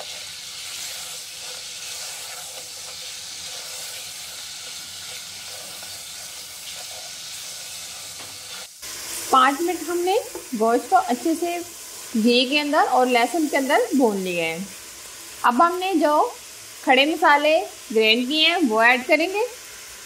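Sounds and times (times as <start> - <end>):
spatula stirring in a pot: 0.0 - 12.1
meat sizzling in oil: 0.0 - 20.0.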